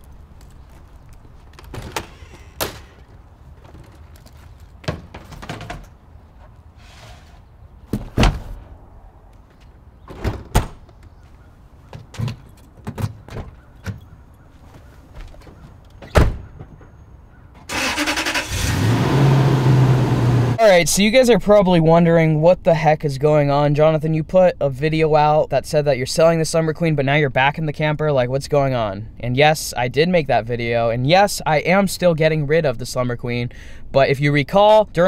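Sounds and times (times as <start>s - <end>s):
door shutting: 1.6s - 3.1s, 10.1s - 10.9s, 16.0s - 16.9s
pickup truck engine starting: 17.7s - 20.6s.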